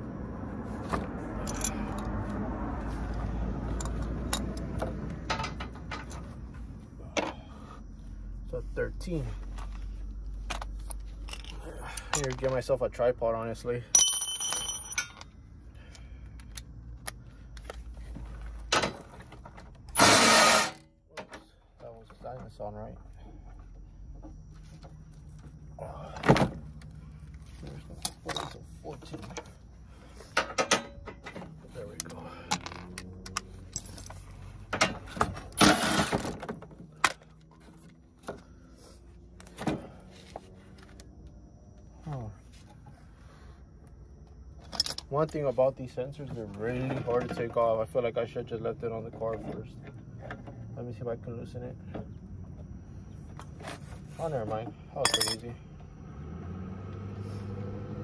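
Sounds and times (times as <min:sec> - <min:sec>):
metal scraping rattle: 0:18.8 - 0:20.8.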